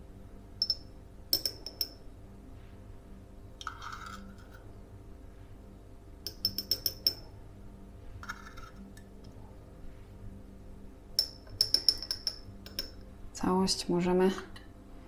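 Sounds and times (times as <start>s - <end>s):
teaspoon tapping on metal pot and cup: 0.6s - 2.0s, 6.2s - 7.3s, 11.2s - 13.0s.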